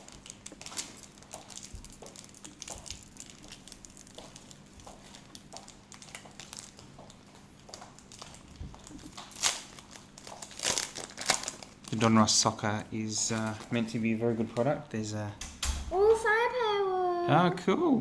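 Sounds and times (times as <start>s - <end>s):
foil pack crinkling and tearing: 0.0s - 12.6s.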